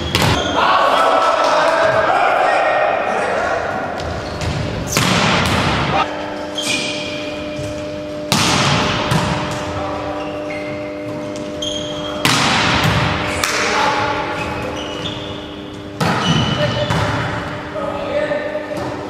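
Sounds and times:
volleyball struck hard: 4.9 - 5.9, 8.3 - 9.5, 12.2 - 13.6
high squeaks: 11.6 - 12.2, 14.3 - 16.9.

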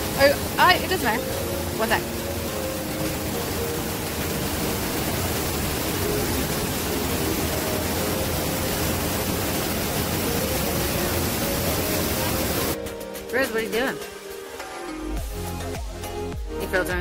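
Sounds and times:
steady rushing noise: 0.0 - 13.4.

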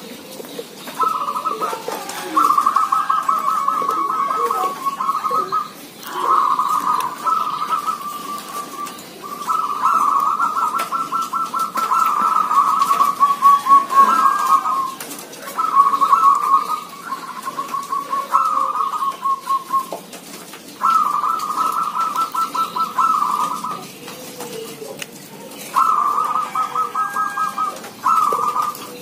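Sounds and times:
doves cooing: 0.0 - 29.0.

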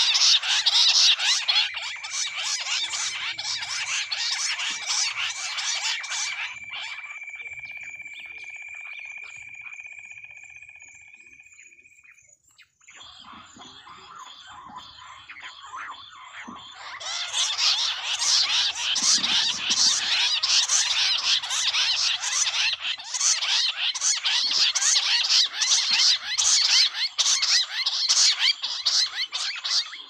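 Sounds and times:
quail trilling chorus: 0.0 - 30.0.

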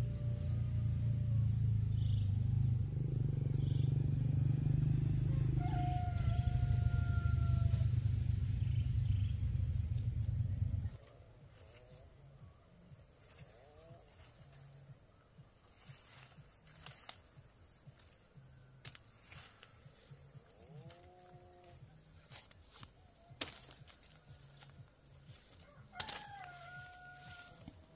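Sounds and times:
loud low rumble: 0.0 - 11.0
insect drone: 0.0 - 27.9.

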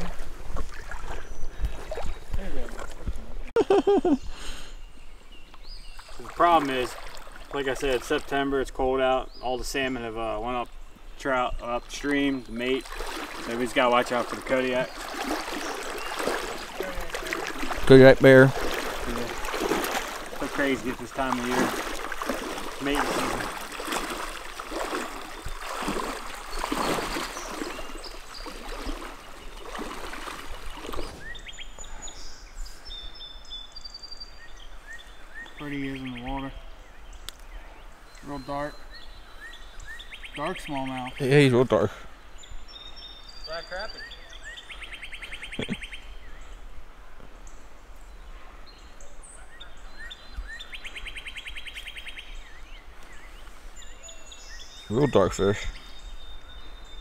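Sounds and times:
small birds chirping: 0.0 - 2.8, 3.6 - 57.0
creek water splashing: 0.0 - 57.0
high bird chirps: 22.2 - 30.2.

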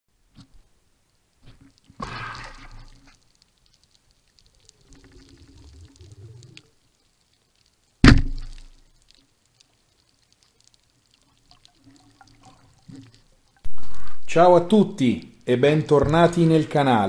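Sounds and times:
speargun firing underwater: 8.0 - 8.6.

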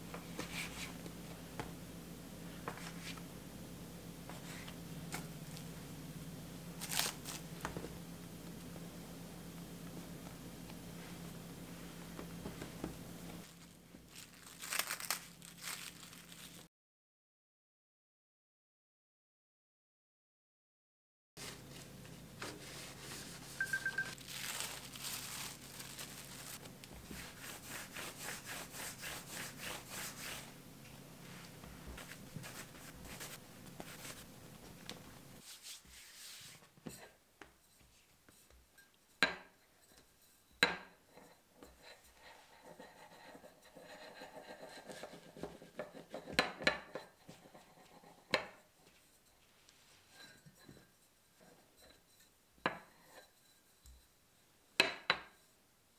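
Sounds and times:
hands rubbing bread dough: 0.3 - 1.0, 21.4 - 30.6, 31.2 - 34.3, 35.3 - 36.8, 41.6 - 51.7.

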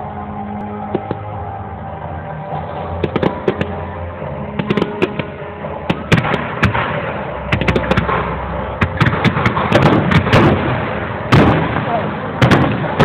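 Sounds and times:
fireworks bangs and cracks: 3.0 - 3.8, 4.5 - 13.0.

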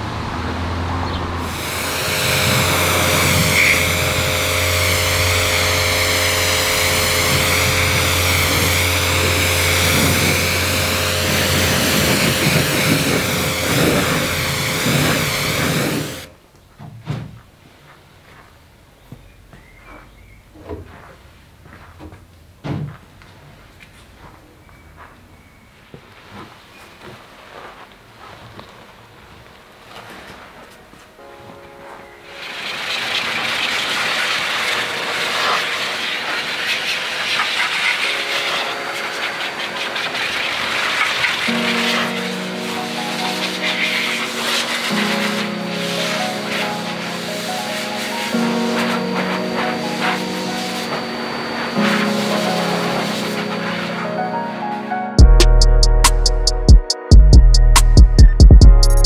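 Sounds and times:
air blower hissing through hose: 1.4 - 16.3, 32.3 - 54.4
pressure washer spraying water: 1.4 - 16.3, 32.2 - 54.4
pump humming: 1.4 - 16.3, 32.4 - 54.2
towel brushing on car: 32.3 - 54.1.

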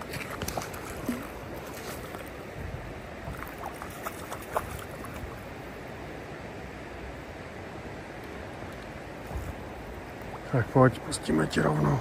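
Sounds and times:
fish splashing at water surface: 0.0 - 2.4, 3.3 - 5.4
river water flowing: 0.0 - 12.0.

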